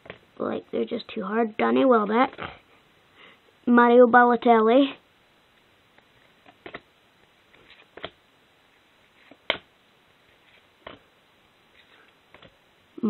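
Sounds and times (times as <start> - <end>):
trading cards flipping and clicking: 6.0 - 6.9, 7.5 - 8.2.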